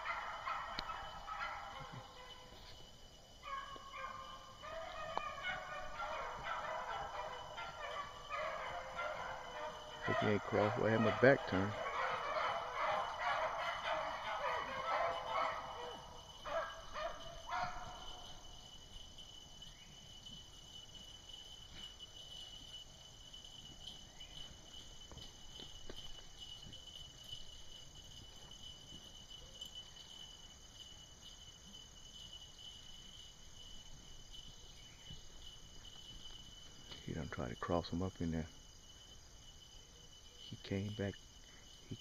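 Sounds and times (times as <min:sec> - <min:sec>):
beagles baying: 0:00.0 - 0:31.5
insects trilling: 0:00.0 - 0:42.0.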